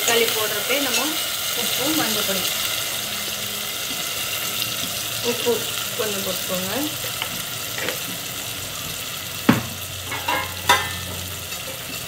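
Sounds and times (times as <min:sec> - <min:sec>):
vegetables sizzling in oil: 0:00.0 - 0:12.0
metal ladle clinking on pan: 0:09.5 - 0:11.1.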